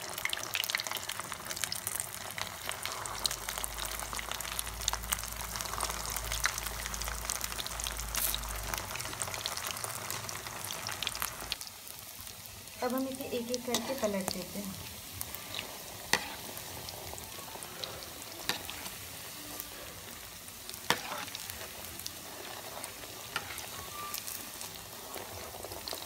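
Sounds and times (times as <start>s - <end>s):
deep-frying sizzle with crackles: 0.0s - 26.0s.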